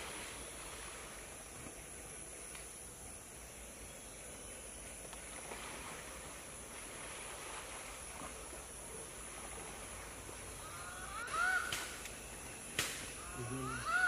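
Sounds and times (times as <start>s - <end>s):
insect drone: 0.0s - 14.0s
bird call: 10.6s - 14.0s.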